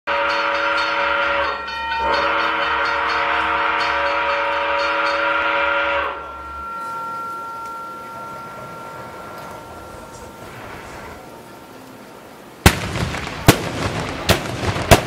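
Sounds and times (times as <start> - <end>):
train horn blowing: 0.1 - 10.5.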